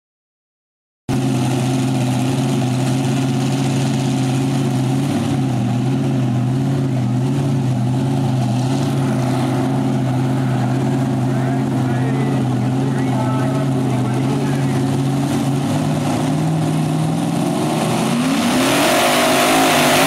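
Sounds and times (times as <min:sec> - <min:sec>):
tractor engine idling: 0:01.1 - 0:18.7.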